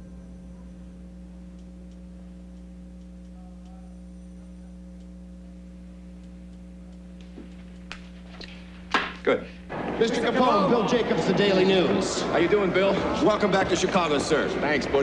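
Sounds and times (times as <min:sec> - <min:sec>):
electrical mains hum: 0:00.0 - 0:15.0
faint ticks: 0:01.5 - 0:08.2.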